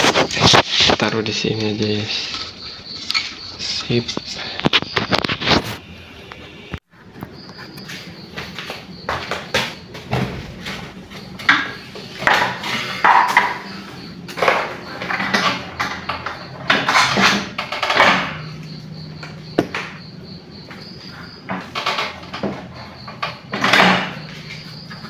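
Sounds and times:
objects rustling scraping and knocking: 0.0 - 18.8.

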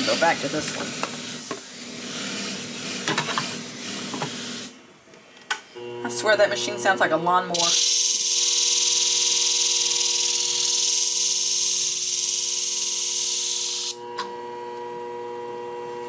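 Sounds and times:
machine hum: 5.7 - 14.3
blade grinding on abrasive disc: 7.6 - 14.0.

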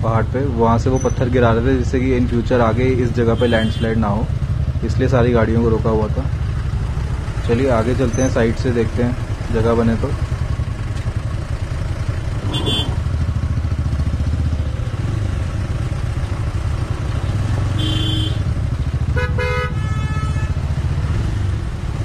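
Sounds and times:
motorcycle engine running: 0.2 - 22.0
vehicle horns tooting: 3.3 - 4.1, 12.4 - 13.1, 17.7 - 18.5, 19.1 - 20.7.

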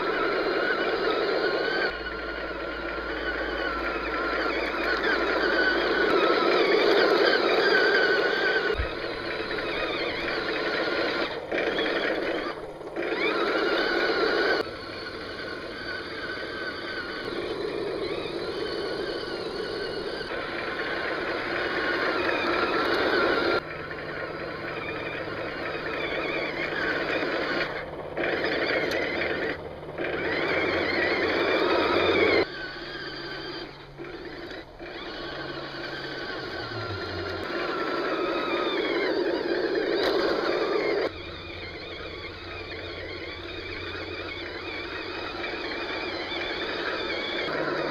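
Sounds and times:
toy tank electric motor whine: 0.0 - 47.9.

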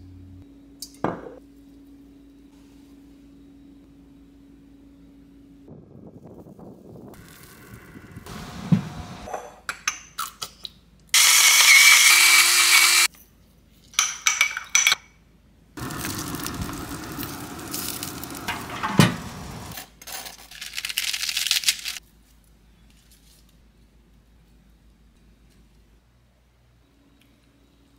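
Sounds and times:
patties sizzling on a grill: 15.8 - 18.8.

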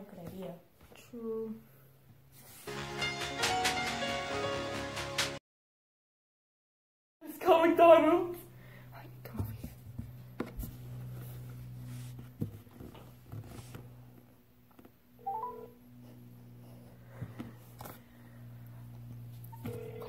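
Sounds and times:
brief electronic tone: 15.2 - 15.8
short rising chirp: 15.2 - 15.8.

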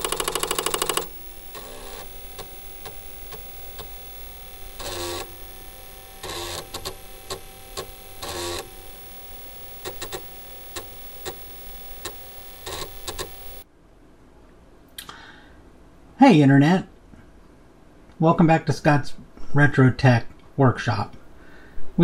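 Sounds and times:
mechanical clicks: 0.0 - 4.1, 6.1 - 8.7, 9.3 - 13.6
short buzzing runs: 0.0 - 13.6
steady electrical hum: 0.0 - 22.0.

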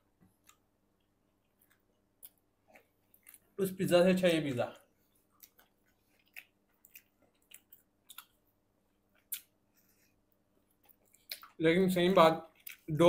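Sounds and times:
mouth clicks and smacks chewing: 0.3 - 3.5, 5.2 - 9.6, 10.7 - 11.6, 12.4 - 12.9.

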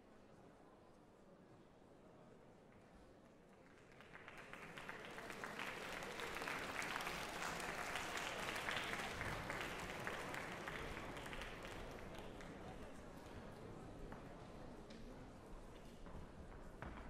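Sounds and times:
audience applauding: 3.6 - 12.7.

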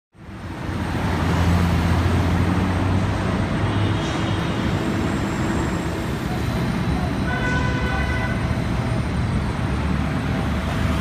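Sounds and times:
street traffic: 0.1 - 11.0.

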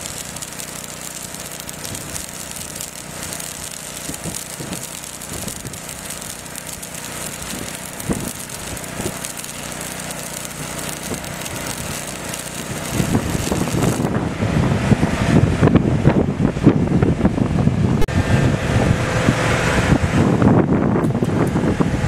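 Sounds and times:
welding arc crackling and hissing: 0.0 - 14.3
engine running: 0.0 - 22.0
wind buffeting microphone: 0.0 - 22.0.

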